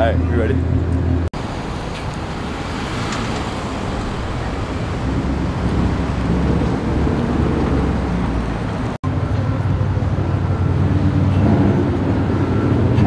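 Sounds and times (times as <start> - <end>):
car exhaust rumble pulling away: 0.7 - 13.0.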